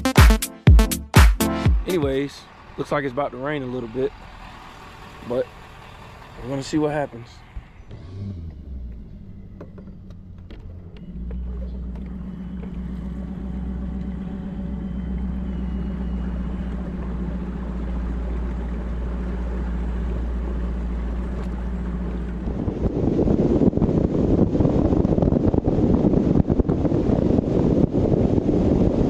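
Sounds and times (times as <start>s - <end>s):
outboard motor running: 2.0s - 29.0s
rush of water noise: 11.9s - 29.0s.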